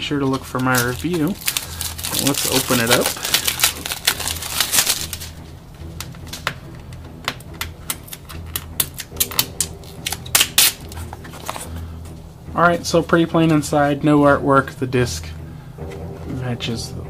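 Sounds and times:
plastic wrapping crackling: 0.1 - 5.4, 8.0 - 11.8.

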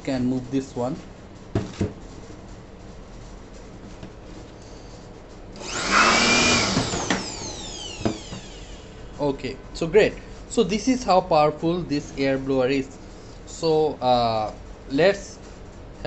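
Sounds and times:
blower knock on surface: 1.5 - 2.0, 6.1 - 8.7
electric air blower whooshing: 5.6 - 9.4.

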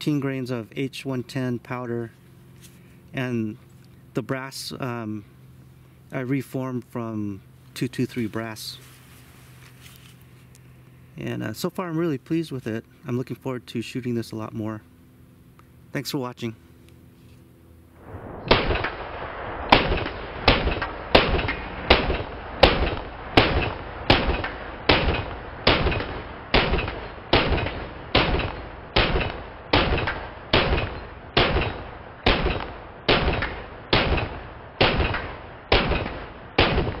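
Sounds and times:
rifle gunshots ringing: 18.0 - 37.0.

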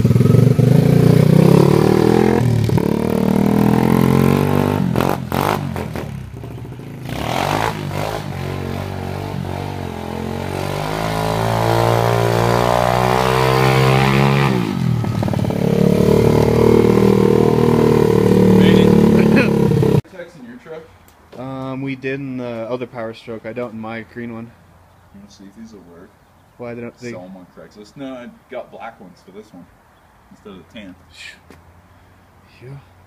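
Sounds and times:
pit bike engine revving: 0.0 - 20.0.

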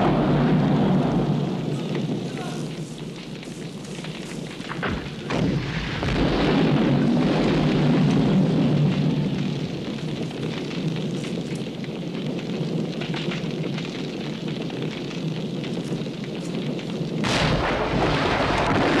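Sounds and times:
rush of blast noise: 0.0 - 3.7, 4.4 - 12.3, 17.2 - 19.0
low rumble with crackles: 0.0 - 19.0.

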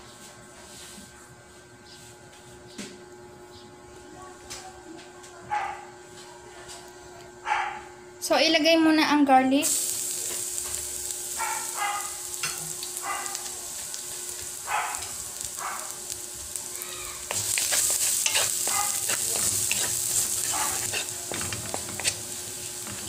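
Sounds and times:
garlic sizzling in hot oil: 9.6 - 23.0
spatula scraping wok: 17.2 - 23.0.

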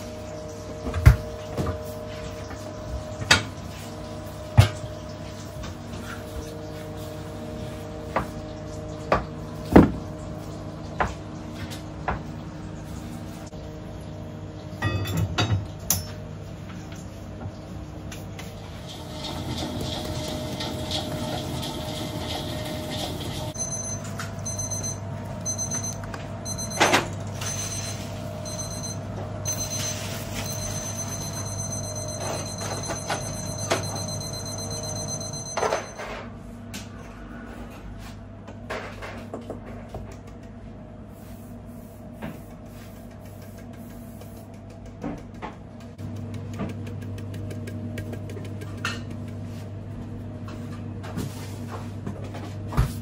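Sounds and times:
machinery hum: 0.0 - 39.9
electronic alarm beeping: 23.6 - 36.1.

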